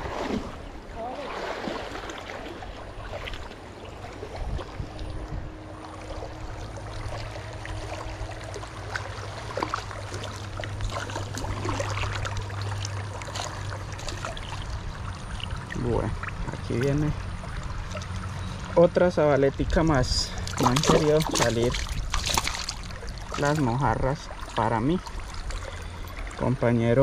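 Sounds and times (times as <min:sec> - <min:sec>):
river water rushing: 0:00.0 - 0:04.7, 0:05.5 - 0:16.4.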